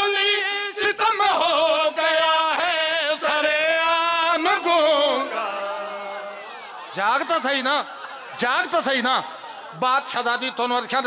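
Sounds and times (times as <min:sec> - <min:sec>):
man singing chanted elegy: 0:00.0 - 0:06.2.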